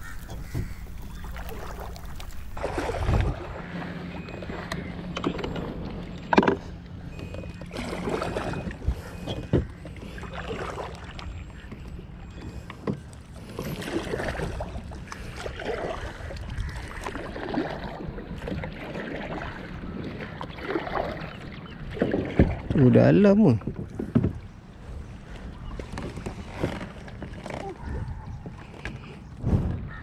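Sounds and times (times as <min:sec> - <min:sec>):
paddle knocking against kayak: 0:00.0 - 0:03.4, 0:16.6 - 0:22.9, 0:23.6 - 0:24.5
paddle splashing through water: 0:00.0 - 0:06.6, 0:07.2 - 0:11.8, 0:12.9 - 0:29.2.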